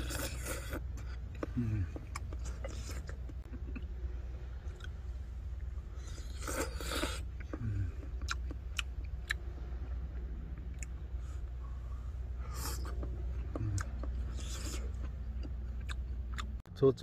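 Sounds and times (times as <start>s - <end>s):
chewing: 0.0s - 3.9s, 5.9s - 9.4s, 12.4s - 16.6s
steady low hum: 0.0s - 17.0s.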